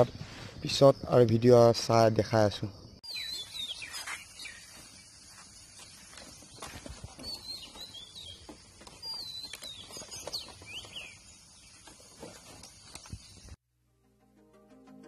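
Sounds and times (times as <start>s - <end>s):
birds chirping: 1.5s - 13.6s.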